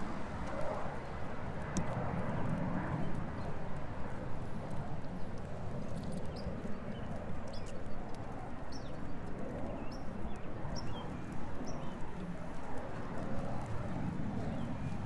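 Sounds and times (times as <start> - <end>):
street traffic hum: 0.0 - 3.2
dog paws on wet pavement: 0.0 - 15.0.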